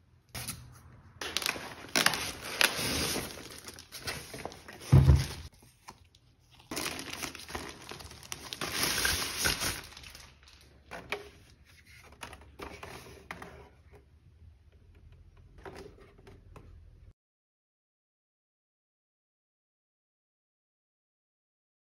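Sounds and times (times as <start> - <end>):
plastic wrap crinkling: 1.2 - 11.2.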